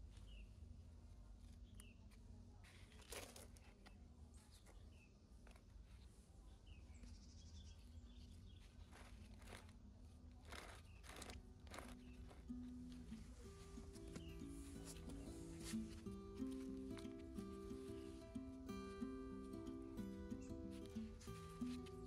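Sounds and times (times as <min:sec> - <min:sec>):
rustling or crunching: 0:08.5 - 0:18.4.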